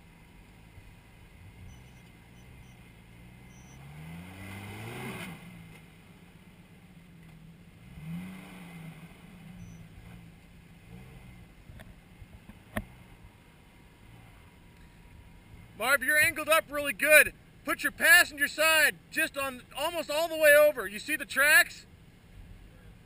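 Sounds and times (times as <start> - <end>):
engine revving: 1.4 - 6.0, 7.2 - 11.7.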